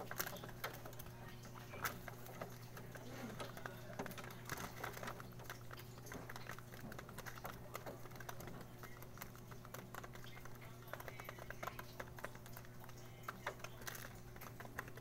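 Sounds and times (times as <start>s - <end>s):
pigeons pecking feed: 0.0s - 15.0s.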